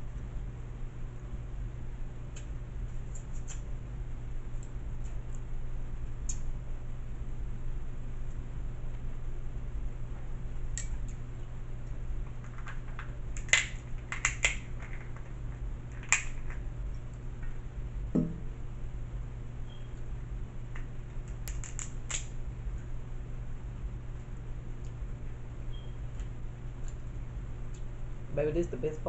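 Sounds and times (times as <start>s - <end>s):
steady low hum: 0.0s - 29.0s
crab shell cracking: 12.4s - 16.6s, 20.7s - 22.4s.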